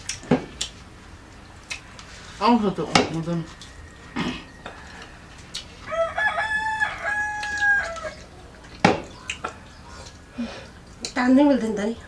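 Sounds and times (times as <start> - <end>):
rooster crowing: 3.4 - 8.4.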